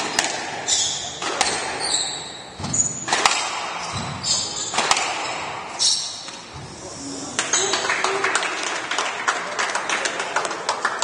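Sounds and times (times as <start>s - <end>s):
shoes squeaking on wooden floor: 1.8s - 3.1s, 3.8s - 6.9s
squash ball cracking off walls: 2.6s - 5.7s.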